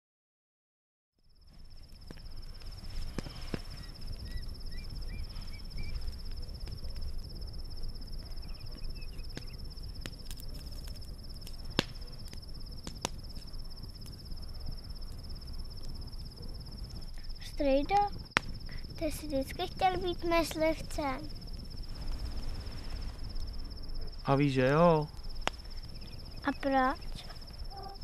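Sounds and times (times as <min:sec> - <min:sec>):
crickets trilling: 0:01.2 - 0:28.0
campfire crackling and popping: 0:01.4 - 0:28.0
low rumble: 0:20.9 - 0:28.0.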